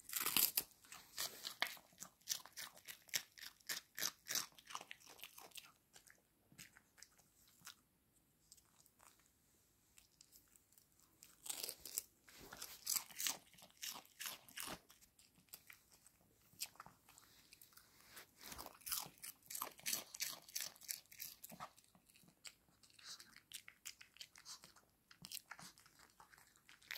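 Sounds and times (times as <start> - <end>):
dog crunching a treat: 0.0 - 7.8, 10.0 - 17.8, 18.4 - 26.9.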